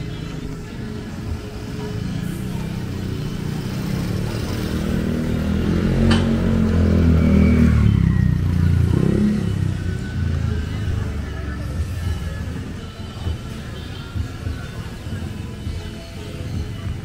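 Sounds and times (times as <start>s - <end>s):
vehicle engine passing by: 2.2s - 11.0s.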